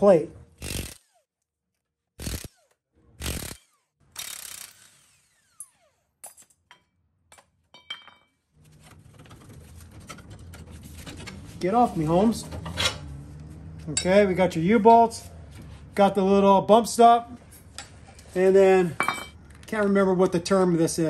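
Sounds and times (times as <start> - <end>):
impact wrench bursts: 0.5 - 1.4, 2.2 - 6.2.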